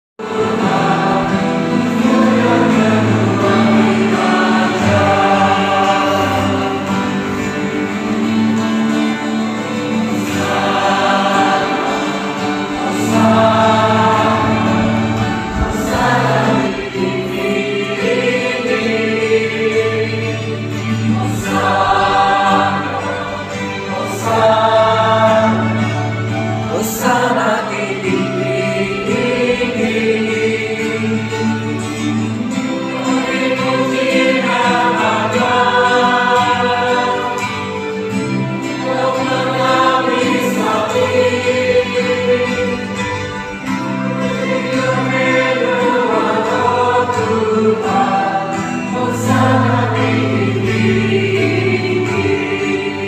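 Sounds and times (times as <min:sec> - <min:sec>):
choir singing a hymn: 0:00.2 - 0:53.0
held low accompanying notes: 0:00.3 - 0:26.8.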